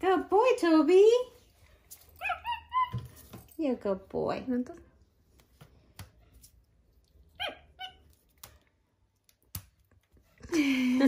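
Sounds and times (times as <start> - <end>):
woman's voice: 0.0 - 1.4, 3.6 - 4.9
monkey squeaking: 2.2 - 3.1.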